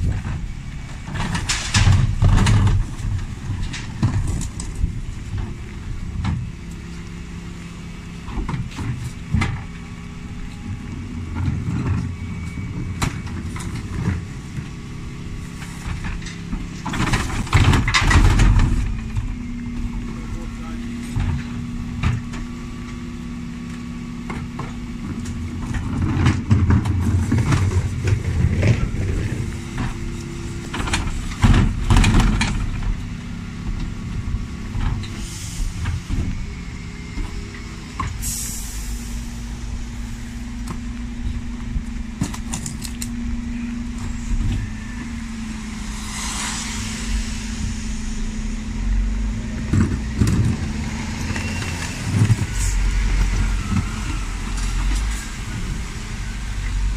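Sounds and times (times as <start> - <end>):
lorry engine running: 0.0 - 56.9
short air hiss: 38.2 - 39.3, 45.2 - 49.4.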